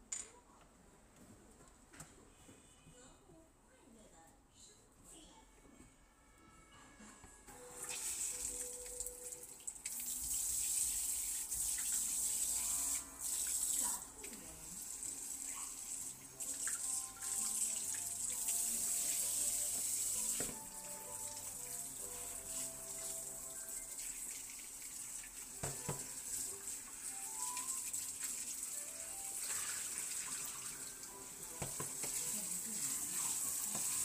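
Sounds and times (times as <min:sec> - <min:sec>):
faucet water splashing into sink: 0:07.8 - 0:34.0.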